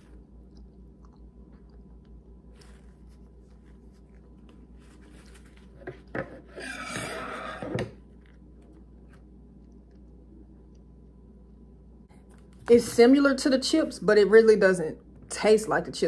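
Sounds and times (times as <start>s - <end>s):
paper napkin rustling: 2.6s - 8.3s.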